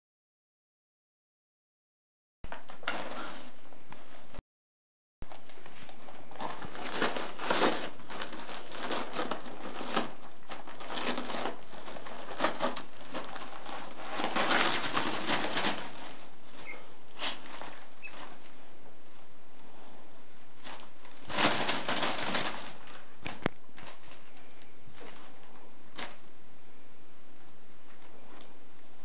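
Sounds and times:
wrapping paper crinkling and tearing: 0:05.3 - 0:16.6, 0:20.6 - 0:26.2.

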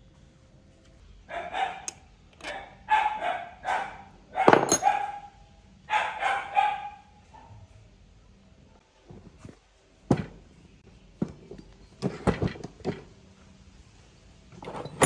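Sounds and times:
dog barking: 0:01.3 - 0:07.7.

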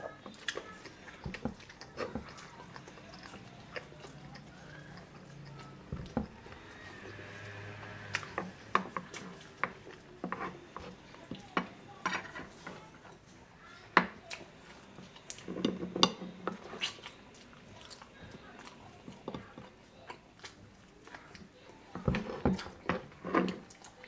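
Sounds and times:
chewing and lip smacks: 0:00.1 - 0:06.2, 0:20.0 - 0:21.6.

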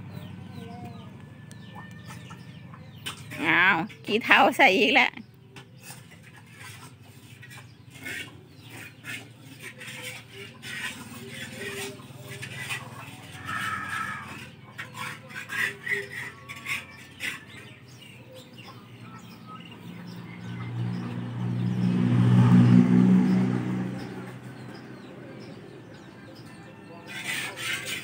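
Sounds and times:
metal spatula scraping in wok: 0:05.8 - 0:19.3, 0:27.1 - 0:28.0
vehicle engine passing by: 0:16.0 - 0:28.0.

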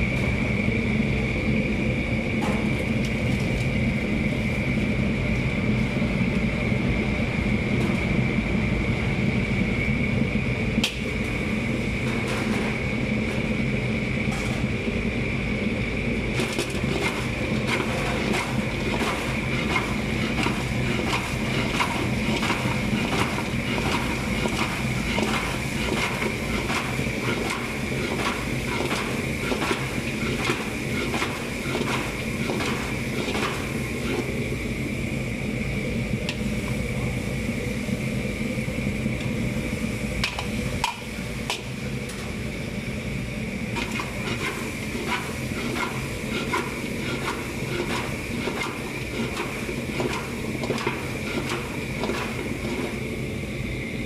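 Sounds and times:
gas burner whine: 0:00.0 - 0:54.0
ladle scraping wok: 0:43.8 - 0:49.5.

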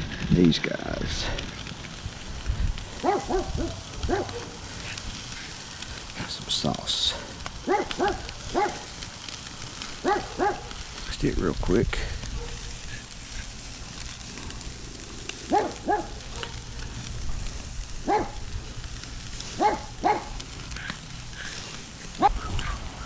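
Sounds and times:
burgers sizzling on a grill: 0:00.0 - 0:23.0
dog barking: 0:03.0 - 0:04.6, 0:07.6 - 0:08.8, 0:10.0 - 0:10.8, 0:12.3 - 0:12.7, 0:15.5 - 0:16.9, 0:18.0 - 0:18.4, 0:19.6 - 0:20.4, 0:22.2 - 0:22.5.

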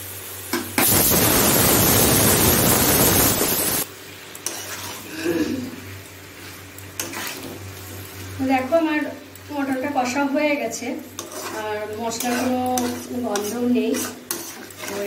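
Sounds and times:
curry sizzling in a pan: 0:00.0 - 0:15.0
metal spatula scraping a pan: 0:04.4 - 0:05.1, 0:06.4 - 0:07.6, 0:11.1 - 0:15.0.

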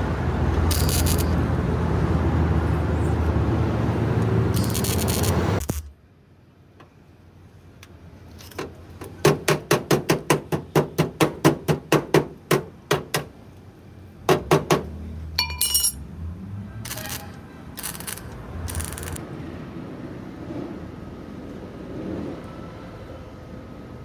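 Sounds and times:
short metallic ring: 0:15.4 - 0:16.0.

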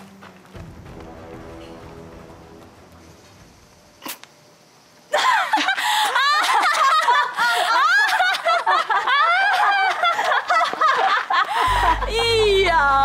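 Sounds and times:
women laughing theatrically: 0:05.1 - 0:12.7.

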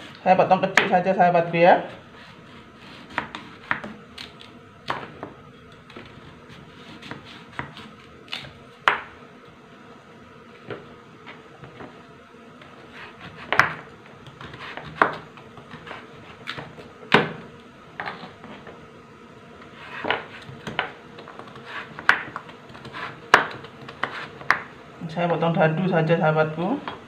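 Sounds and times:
knife chopping on cutting board: 0:02.8 - 0:04.3, 0:06.9 - 0:09.1, 0:13.0 - 0:17.4, 0:19.8 - 0:24.7.

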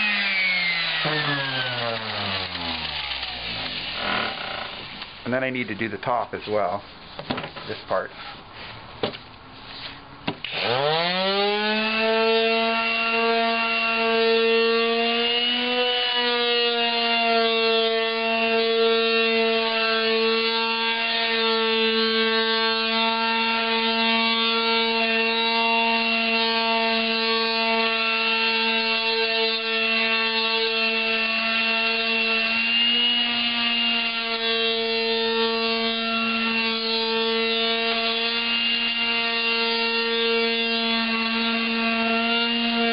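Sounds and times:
electric sander on wood: 0:00.0 - 0:05.9, 0:10.3 - 0:42.9
light knocks and rubs: 0:07.0 - 0:07.8.

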